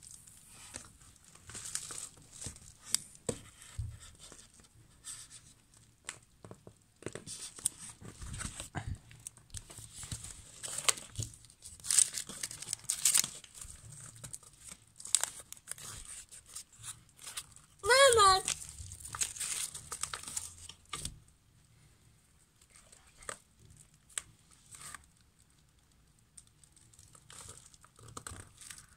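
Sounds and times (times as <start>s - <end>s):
packaging crinkling and rustling: 0.0s - 4.6s, 7.0s - 21.2s, 26.4s - 28.9s.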